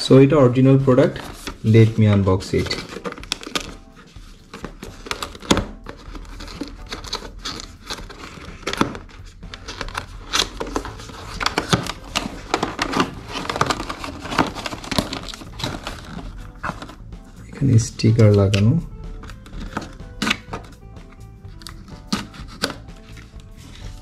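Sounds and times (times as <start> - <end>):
cardboard box crinkling and tearing: 1.0 - 17.0.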